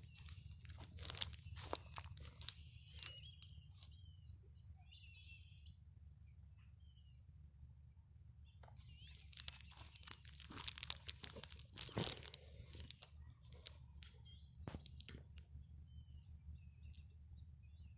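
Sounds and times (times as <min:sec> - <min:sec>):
birds chirping faintly: 0:00.0 - 0:17.9
low steady hum: 0:00.0 - 0:17.9
phone handling crackling: 0:08.6 - 0:15.4.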